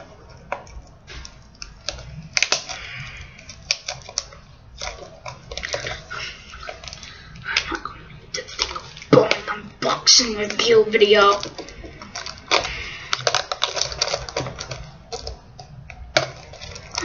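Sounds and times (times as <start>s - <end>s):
cellophane crinkling: 0.0s - 17.0s
fingernails scratching plastic wrap: 0.0s - 17.0s.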